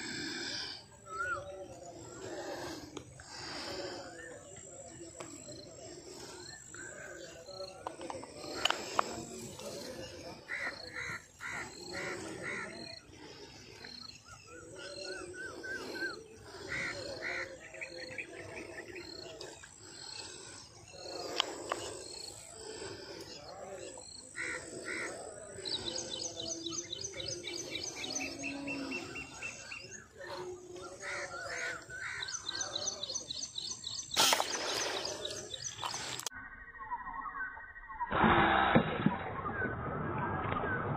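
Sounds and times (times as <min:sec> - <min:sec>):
birds calling and chirping: 0:00.0 - 0:40.9.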